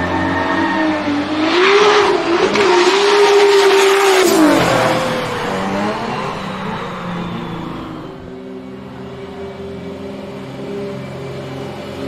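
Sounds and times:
race car engine revving: 0:00.0 - 0:08.4.

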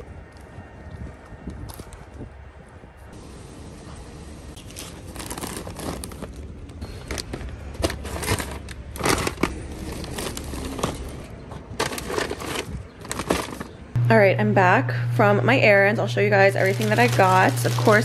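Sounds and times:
paper bags rustling: 0:04.6 - 0:13.9, 0:16.3 - 0:18.0
steady low hum: 0:13.9 - 0:18.0.

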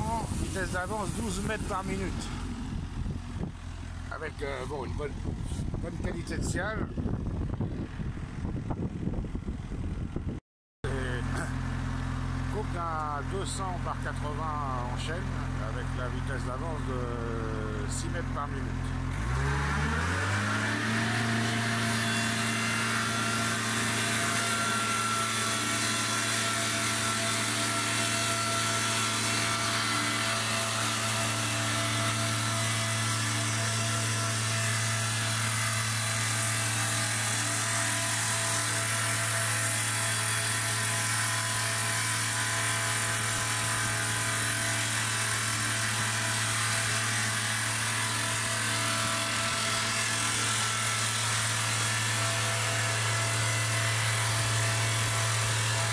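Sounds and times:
diesel engine drone: 0:00.0 - 0:55.9
saw chain hissing through log: 0:21.2 - 0:55.8.

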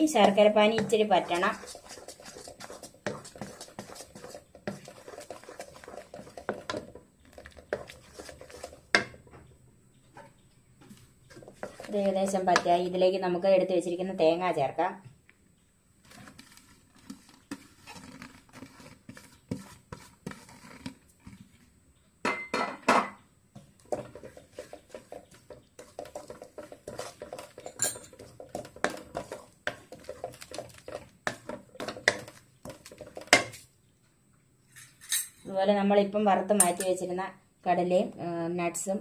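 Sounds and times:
wooden spatula scraping metal pan: 0:00.0 - 0:09.3, 0:10.2 - 0:13.0, 0:16.0 - 0:21.6, 0:23.6 - 0:33.7
utensil clatter: 0:23.8 - 0:33.6.

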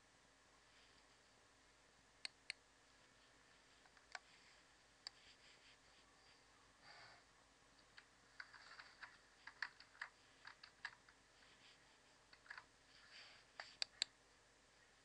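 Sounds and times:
keyboard and mouse clicking: 0:07.8 - 0:11.2, 0:12.3 - 0:12.7, 0:13.6 - 0:14.2.

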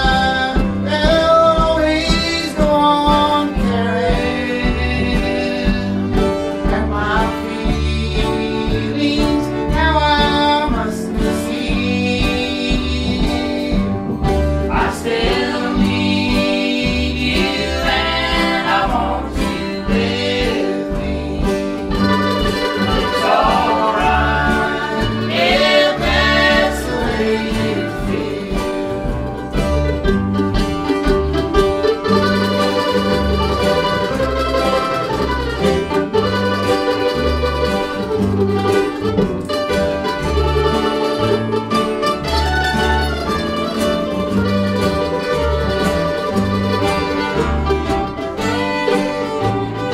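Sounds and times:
man singing: 0:00.0 - 0:29.2
acoustic guitar: 0:00.0 - 0:49.9
mandolin: 0:00.0 - 0:49.9
upright bass: 0:00.0 - 0:49.9.

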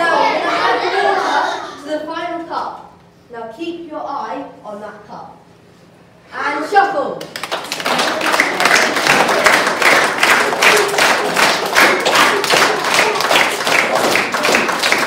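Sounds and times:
children clapping in time: 0:07.2 - 0:15.0.

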